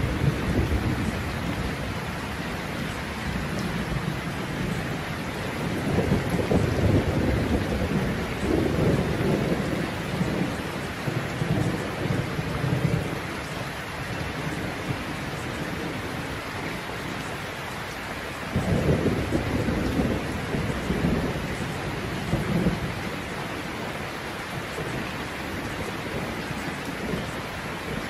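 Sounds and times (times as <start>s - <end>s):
rain hissing: 0.0s - 28.0s
rolling thunder: 5.6s - 13.2s, 18.5s - 23.0s.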